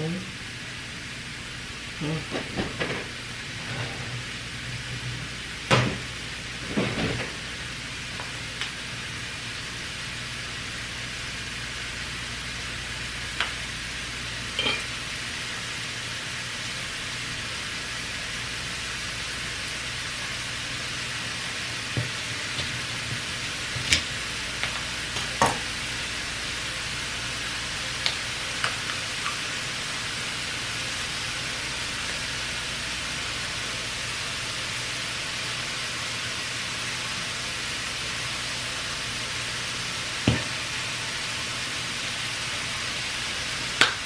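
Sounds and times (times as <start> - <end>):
mushrooms sizzling in a pan: 7.4 - 44.0
utensil clinking against pan: 14.6 - 14.9.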